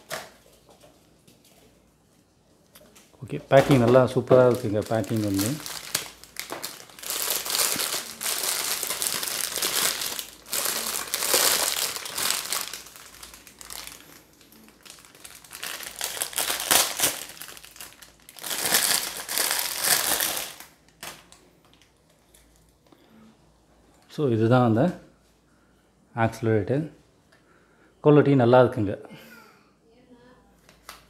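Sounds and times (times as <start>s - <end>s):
plastic bag crinkling: 3.3s - 22.8s.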